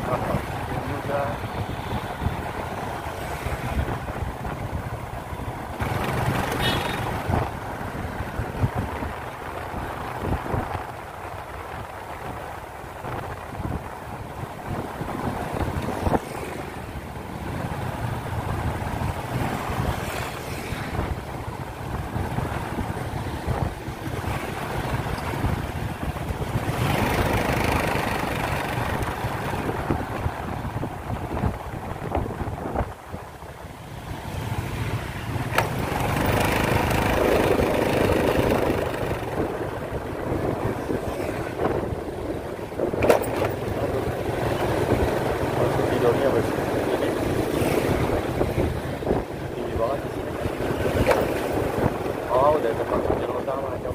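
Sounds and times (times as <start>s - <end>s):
wind rush on microphone: 0.0s - 53.9s
motorcycle engine running: 5.8s - 7.2s, 26.6s - 29.7s, 35.5s - 39.6s.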